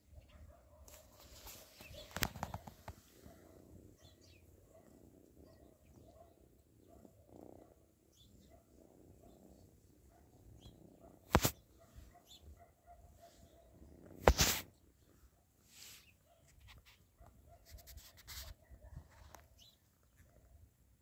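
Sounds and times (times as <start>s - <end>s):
phone brushing against cat fur: 0.8s - 3.5s, 11.3s - 12.1s, 14.1s - 14.7s, 15.6s - 19.5s
faint bird chirps: 1.4s - 4.8s, 5.4s - 7.1s, 8.0s - 9.4s, 10.5s - 10.9s, 11.5s - 12.6s, 19.4s - 20.2s.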